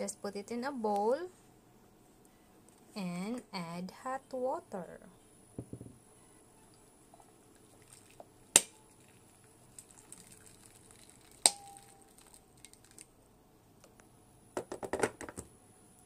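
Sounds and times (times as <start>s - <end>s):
water pouring into a bowl: 7.2s - 13.1s.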